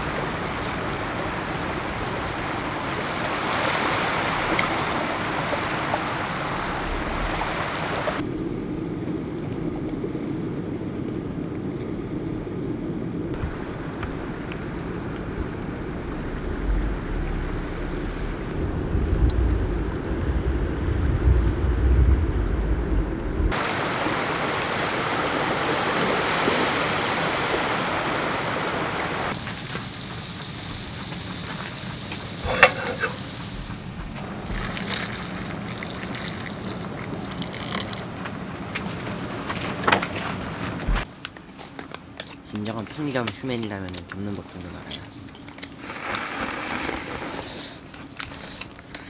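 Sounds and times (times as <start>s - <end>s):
small waves washing on shore: 0.0s - 8.3s, 23.5s - 41.1s
wind buffeting microphone: 0.0s - 29.4s.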